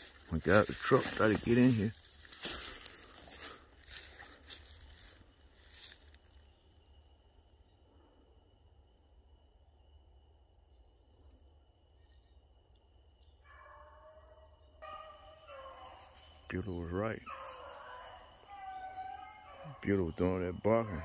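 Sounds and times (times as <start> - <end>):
footsteps crunching on pine straw: 0.0 - 6.4, 14.9 - 19.8
faint bird chirps: 2.0 - 21.0.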